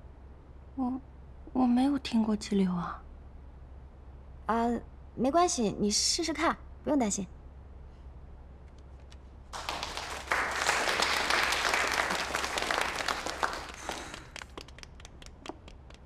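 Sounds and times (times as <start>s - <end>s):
small audience applauding: 9.5s - 16.0s.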